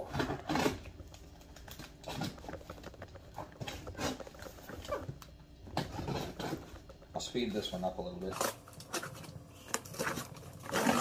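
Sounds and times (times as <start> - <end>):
packing tape peeling: 8.3 - 11.0.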